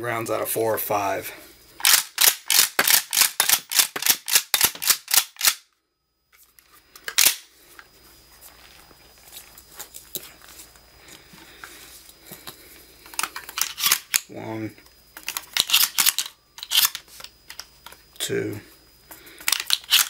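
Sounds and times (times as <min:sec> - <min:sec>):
sharp metallic clicks: 0:01.8 - 0:05.7, 0:07.0 - 0:07.5, 0:13.1 - 0:14.4, 0:15.2 - 0:18.0, 0:19.4 - 0:20.0.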